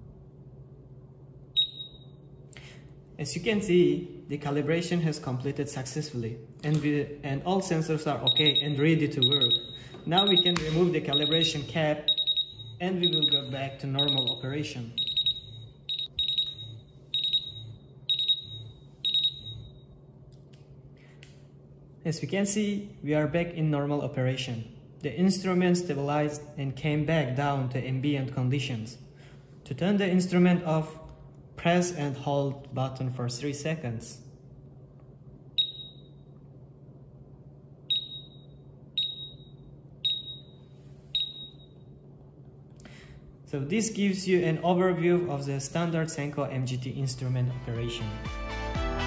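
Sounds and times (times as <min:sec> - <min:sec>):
gas detector alarm beeps: 0:01.5 - 0:02.2, 0:08.2 - 0:19.9, 0:35.6 - 0:36.3, 0:37.9 - 0:41.9.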